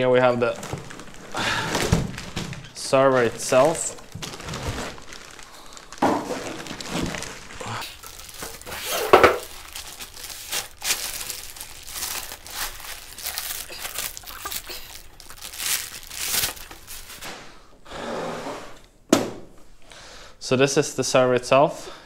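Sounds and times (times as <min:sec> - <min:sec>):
plastic bag crinkling: 0:00.0 - 0:17.3.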